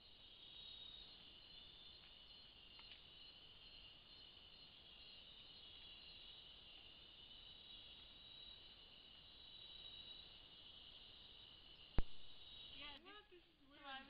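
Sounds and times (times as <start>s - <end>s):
night insects trilling: 0.0s - 14.0s.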